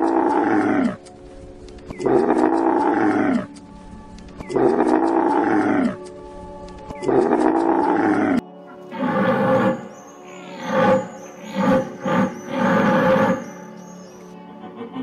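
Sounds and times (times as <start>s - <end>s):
camel groaning: 0.0s - 1.1s, 2.0s - 3.6s, 4.5s - 6.1s, 7.0s - 13.7s
higher animal call: 7.1s - 13.8s.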